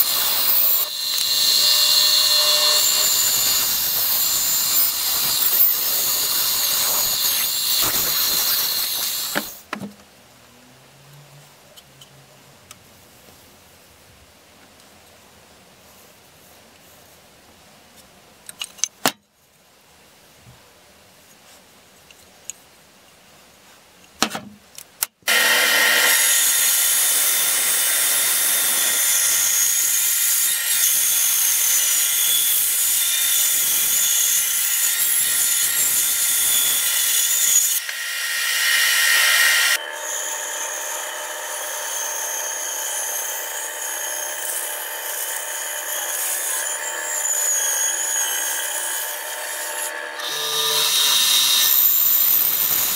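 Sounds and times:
bandsaw cutting wood: 0:00.0 - 0:09.7, 0:25.3 - 0:52.9.

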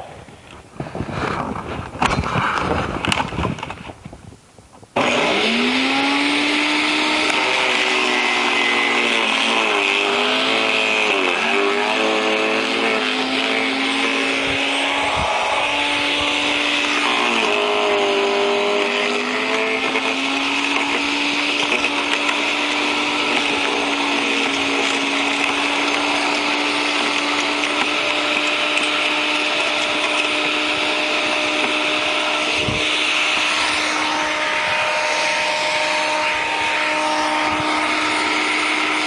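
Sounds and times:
branch shredder motor humming: 0:05.0 - 0:39.0
clatter: 0:16.8 - 0:31.8.

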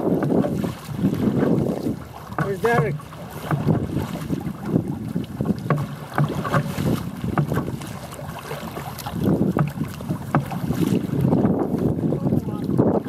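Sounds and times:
water splashing against hull: 0:00.0 - 0:13.0
wind buffeting microphone: 0:00.0 - 0:13.0.

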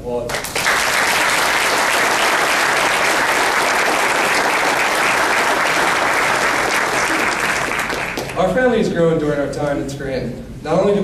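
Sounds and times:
audience applauding: 0:00.3 - 0:08.5.

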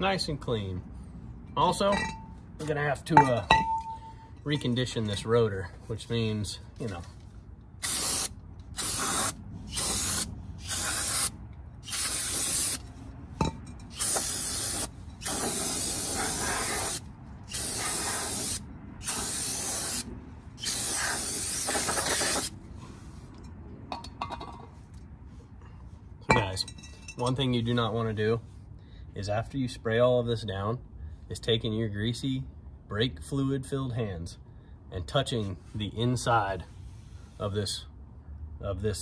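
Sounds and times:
aerosol spray can hissing: 0:07.8 - 0:11.3, 0:11.9 - 0:12.8, 0:14.0 - 0:22.5.

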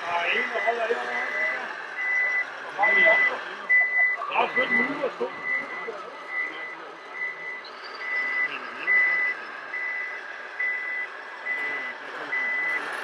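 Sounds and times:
reversing beeper: 0:00.2 - 0:13.0.

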